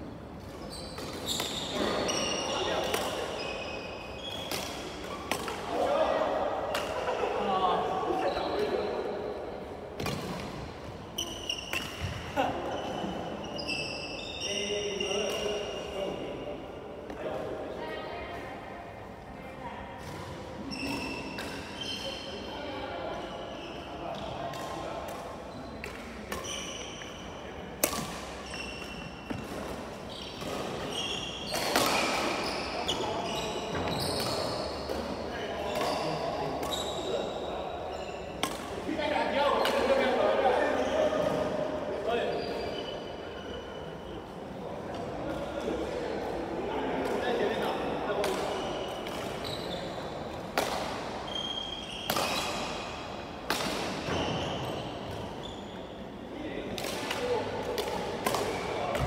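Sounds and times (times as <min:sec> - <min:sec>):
shoes squeaking on court: 0:00.4 - 0:05.6, 0:10.0 - 0:15.8, 0:20.1 - 0:22.6, 0:25.5 - 0:27.2, 0:28.4 - 0:38.6, 0:40.6 - 0:44.1, 0:48.4 - 0:50.3, 0:51.3 - 0:53.0, 0:54.0 - 0:56.0
racket hitting shuttlecock: 0:04.3 - 0:05.7, 0:27.8 - 0:32.4, 0:38.4 - 0:38.8, 0:50.5 - 0:51.1, 0:52.0 - 0:52.8, 0:53.4 - 0:54.3, 0:56.7 - 0:59.0
shoes squeaking on wooden floor: 0:32.4 - 0:34.9.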